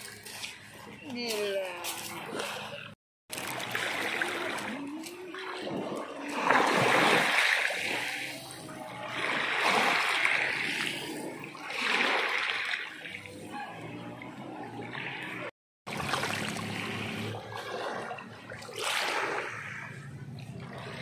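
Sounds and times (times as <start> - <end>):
waves washing over pebbles: 3.3 - 13.3.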